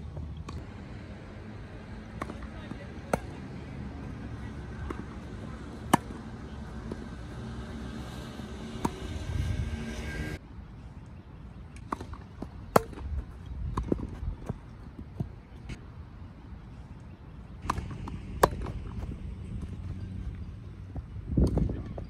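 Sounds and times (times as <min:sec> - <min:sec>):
steady background hum: 0:00.0 - 0:22.0
tennis racquet hitting ball: 0:05.8 - 0:07.2.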